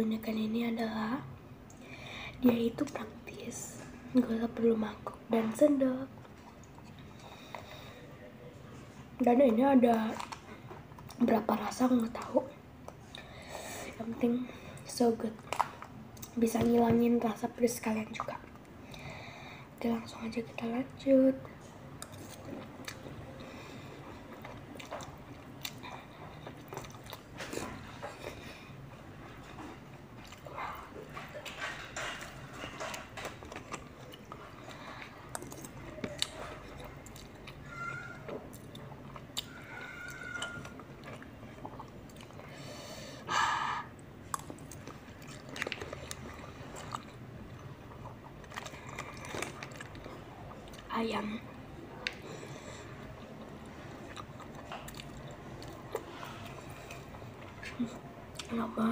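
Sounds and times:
chewing: 8.8s - 13.3s, 14.7s - 16.4s, 22.0s - 42.6s, 44.2s - 50.9s, 52.0s - 58.6s.

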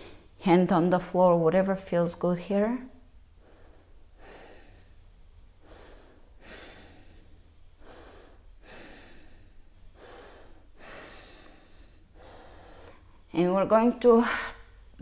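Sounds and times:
woman breathing deeply: 3.2s - 13.3s.

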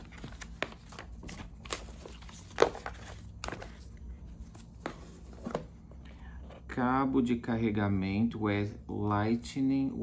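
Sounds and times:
paper rustling: 0.0s - 5.6s.

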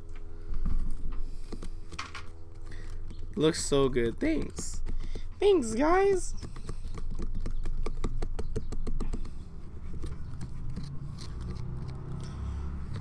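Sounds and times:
knife sawing pumpkin rind: 9.1s - 13.0s.

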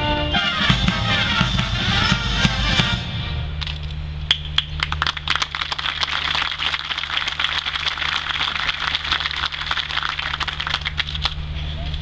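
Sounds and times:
crowd applauding: 4.3s - 11.4s.

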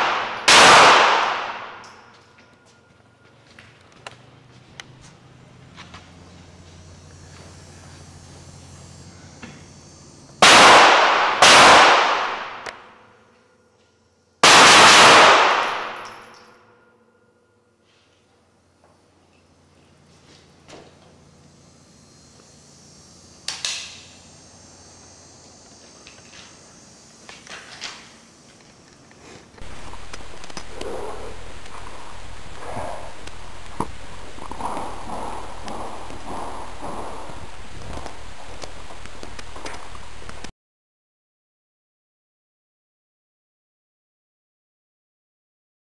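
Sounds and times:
echoing gunshots: 0.0s - 2.1s, 10.4s - 12.7s, 14.4s - 16.3s, 29.6s - 39.0s
steady hum: 0.0s - 40.5s
footsteps: 2.0s - 8.0s.

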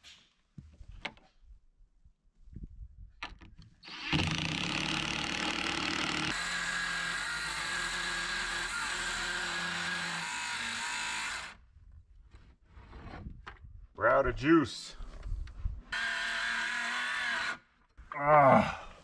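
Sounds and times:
power saw cutting wood: 3.8s - 11.6s, 15.9s - 17.6s.

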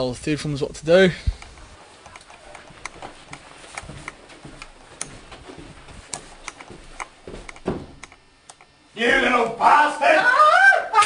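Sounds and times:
footsteps on hard floor: 1.8s - 8.1s
loud knock: 7.6s - 8.0s.

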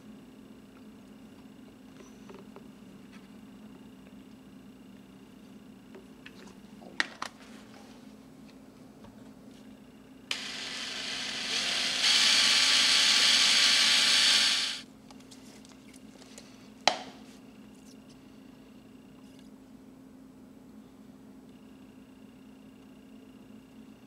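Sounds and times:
cordless drill spinning: 10.3s - 14.8s.

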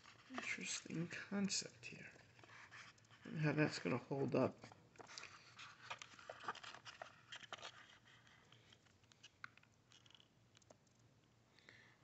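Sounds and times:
plastic earbuds clicking and rustling: 4.5s - 11.1s.

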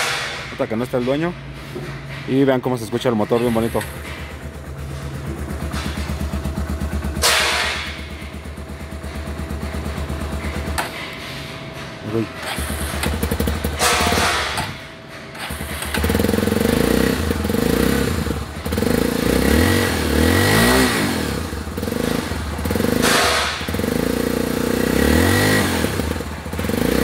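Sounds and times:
motorcycle engine revving: 3.4s - 10.9s, 12.4s - 14.6s, 15.4s - 27.0s
engine popping: 12.1s - 14.7s, 15.4s - 27.0s.

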